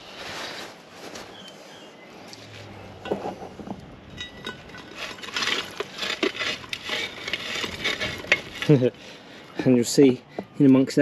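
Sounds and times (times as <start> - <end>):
coals crunching and clinking: 2.2 - 11.0
metal shovel scraping charcoal: 2.4 - 10.2.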